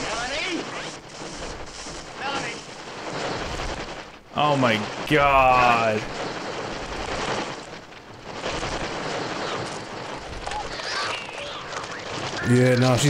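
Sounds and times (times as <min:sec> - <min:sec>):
rushing flutter of wings: 0:00.0 - 0:13.0
high bird shrieks: 0:10.5 - 0:12.1.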